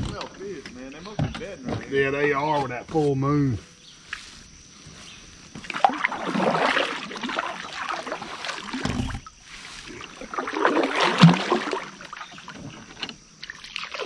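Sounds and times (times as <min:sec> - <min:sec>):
knocks against a hull: 0:00.0 - 0:02.0
water splashing around a kayak: 0:04.0 - 0:14.0.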